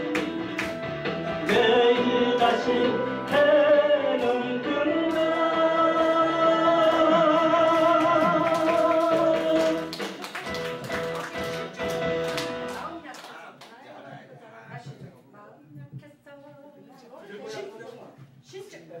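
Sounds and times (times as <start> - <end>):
backing music with steady beat: 0.0 - 12.9
man singing into microphone: 1.4 - 9.9.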